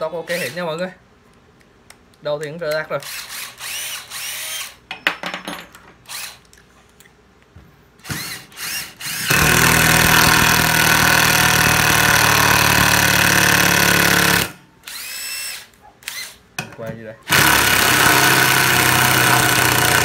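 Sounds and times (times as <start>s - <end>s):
impact driver motor whining: 8.0s - 16.4s.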